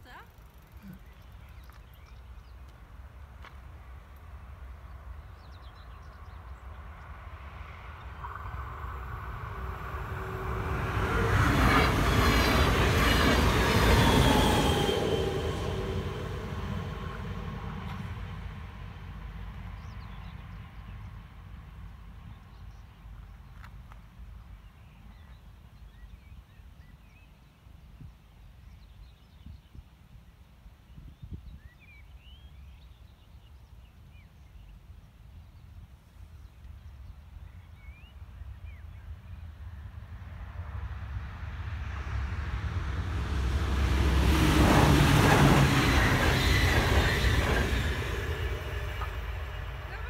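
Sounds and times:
small birds chirping: 0.0 - 2.9
train passing at speed: 2.4 - 23.4, 37.2 - 50.0.

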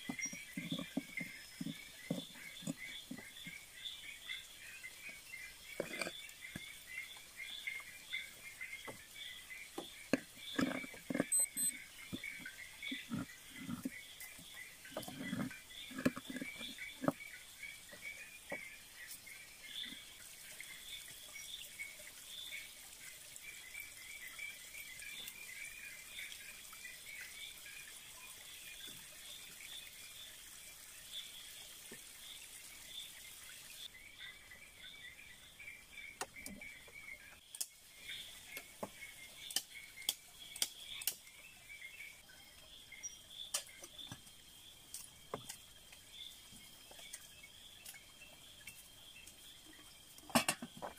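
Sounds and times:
night chorus of chirping: 0.0 - 30.4, 32.3 - 50.9
sharp clicks and snaps: 39.5 - 41.2.

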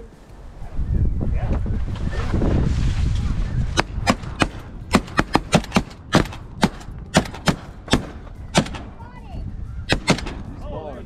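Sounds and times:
shotgun blasts: 3.8 - 9.0, 9.9 - 10.5.

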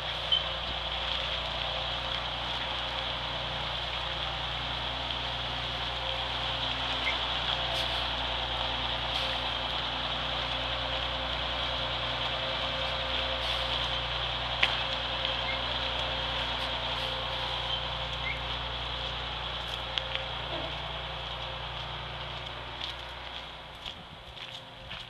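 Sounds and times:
bus engine running: 0.0 - 25.0.

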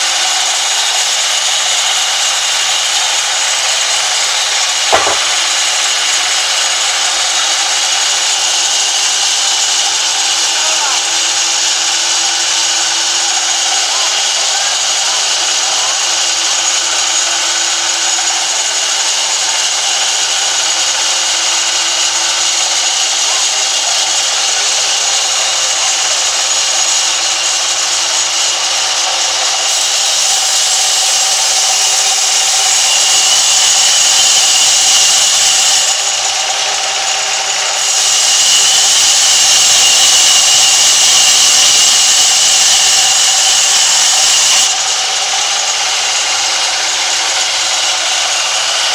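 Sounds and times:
band saw cutting timber: 0.0 - 48.9.

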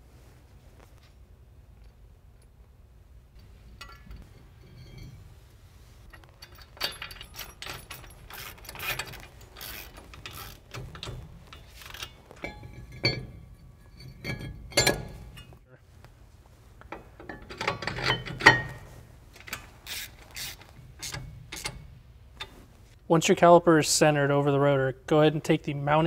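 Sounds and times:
metal parts clinking and scraping: 3.4 - 5.3, 6.0 - 15.6, 17.2 - 22.5
hand ratchet clicking: 6.1 - 12.6, 19.4 - 21.8.

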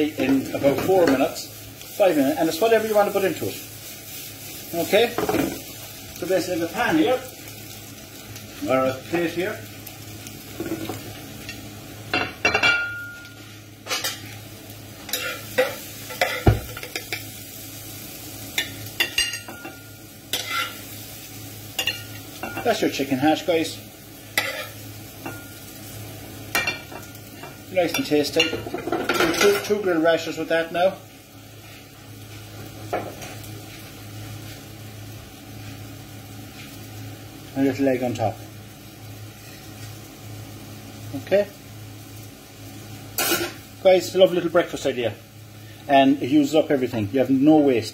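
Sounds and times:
food sizzling in frying pan: 0.0 - 47.9
metal spoon scraping pan and plate: 20.4 - 20.8.

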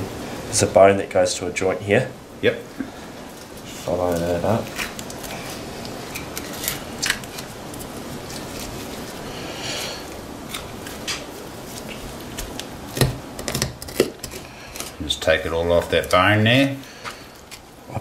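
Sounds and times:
knife scraping hiss: 8.3 - 10.2.

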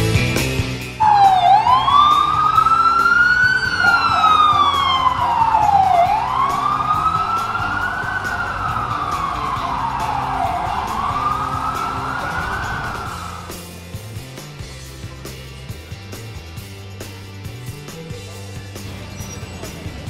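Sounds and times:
street traffic: 0.0 - 20.0
emergency siren wailing: 1.0 - 13.7.

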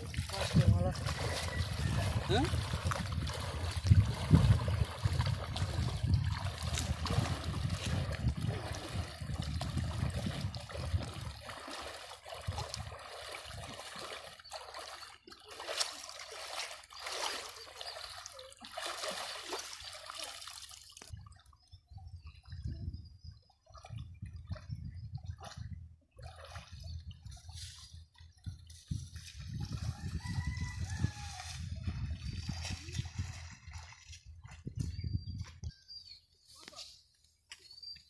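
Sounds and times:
river water splashing: 0.0 - 21.5.

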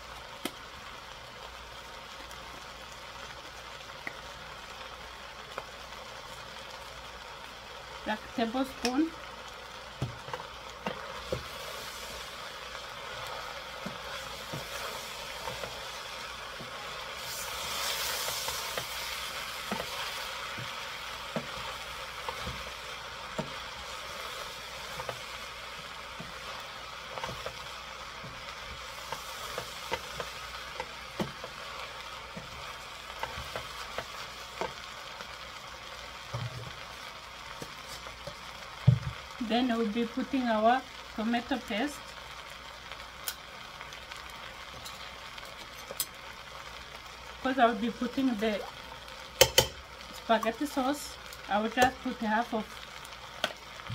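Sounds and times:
food frying sizzle: 0.0 - 53.9
wooden spoon stirring in pot: 8.5 - 39.4
spoon knocking against pot: 49.4 - 49.8.

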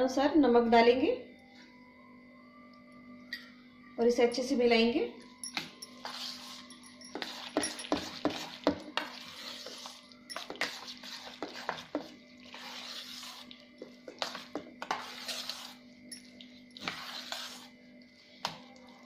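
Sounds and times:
spoon scraping steel bowl: 5.4 - 17.8.

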